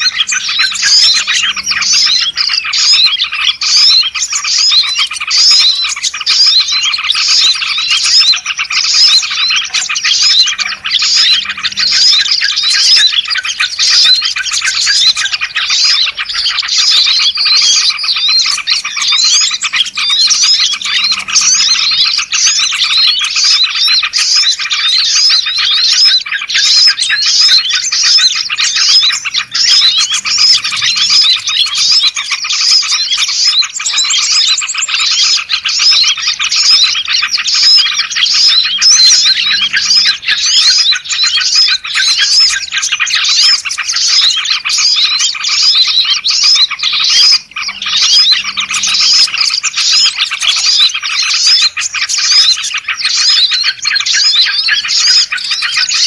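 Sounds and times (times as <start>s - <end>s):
bulbul calls: 0.0s - 56.0s
songbirds chirping and whistling: 0.0s - 56.0s.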